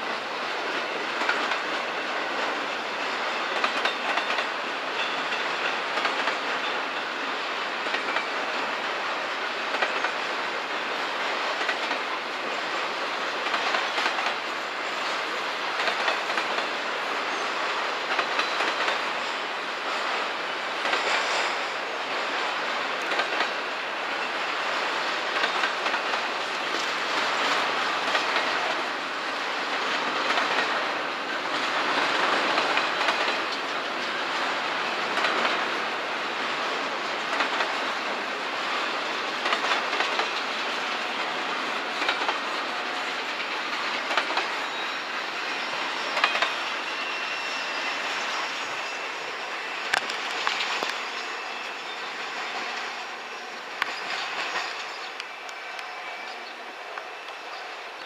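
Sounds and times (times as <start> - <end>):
freight train rumbling past: 0.0 - 58.0
wheels clicking over rail joints: 0.5 - 12.2, 29.6 - 44.8.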